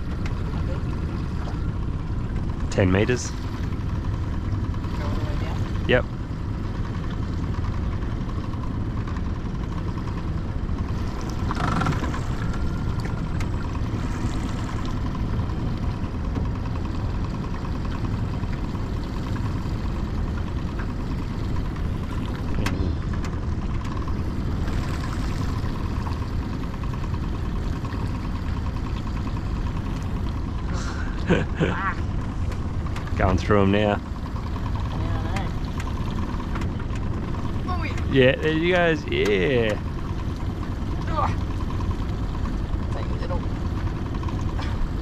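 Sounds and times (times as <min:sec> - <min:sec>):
outboard motor idling: 0:00.0 - 0:45.0.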